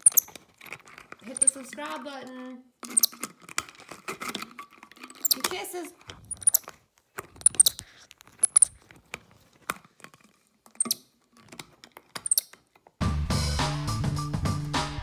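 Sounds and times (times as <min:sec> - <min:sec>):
music: 0:13.0 - 0:15.0.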